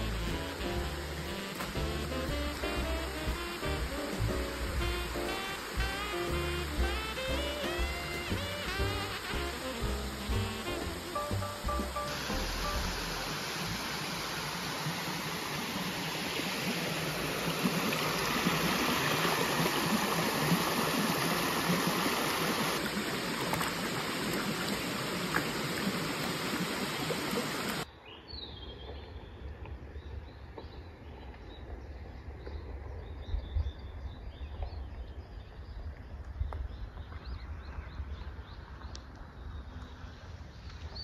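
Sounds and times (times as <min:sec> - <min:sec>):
stream rushing over rocks: 0:00.0 - 0:27.9.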